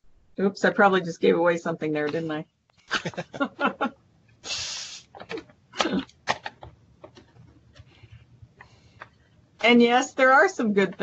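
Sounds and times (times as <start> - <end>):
breathy hiss: 4.4 - 5.2
person making short vocal sounds: 4.5 - 6.0.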